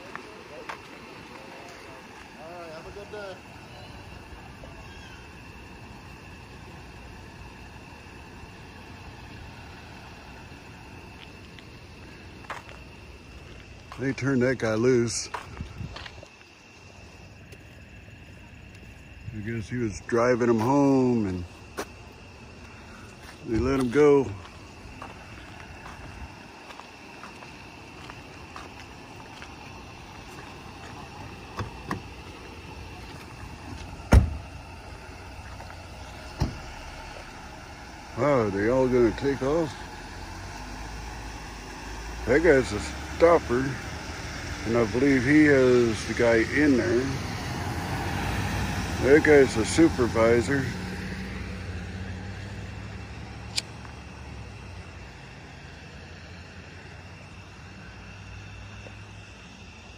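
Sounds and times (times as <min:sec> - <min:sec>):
background hum of vehicles: 0:00.0 - 0:59.9
car door slamming: 0:34.0 - 0:34.5, 0:36.3 - 0:36.7.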